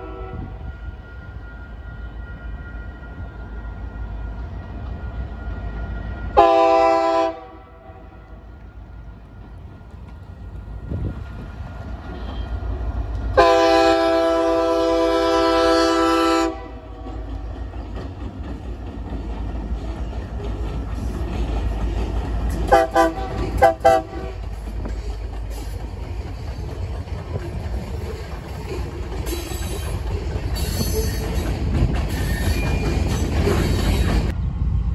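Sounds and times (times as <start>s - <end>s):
locomotive air horn blasts: 0.0s - 1.2s, 6.3s - 8.5s, 13.4s - 17.0s, 22.7s - 24.4s
diesel locomotive rumble: 3.0s - 34.9s.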